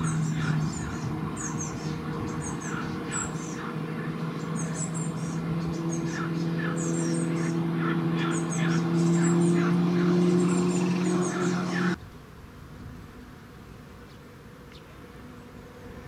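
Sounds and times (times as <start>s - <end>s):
small songbirds chirping: 0.0s - 12.1s
low mechanical hum: 0.0s - 16.0s.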